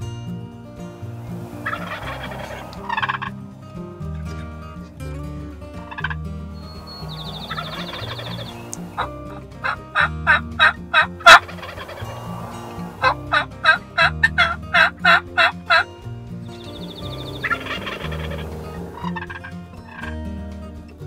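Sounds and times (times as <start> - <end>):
turkey yelping: 1.6 - 3.3, 5.9 - 15.9, 16.7 - 20.1.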